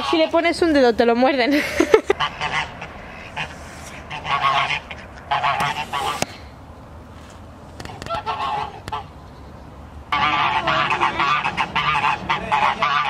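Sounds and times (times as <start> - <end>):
geese honking: 0.0 - 0.8, 2.1 - 6.3, 7.8 - 9.1, 10.1 - 13.0.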